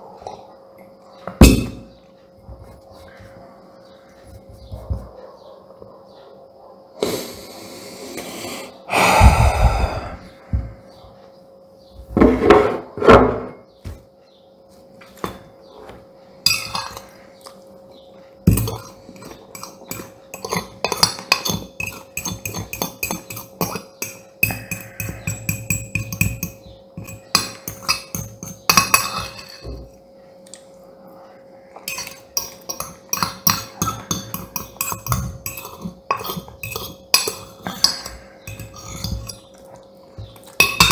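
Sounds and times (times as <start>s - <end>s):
metal spoon scraping ceramic plate: 16.5s - 17.1s, 18.5s - 29.7s, 31.8s - 39.5s, 40.6s - 40.9s.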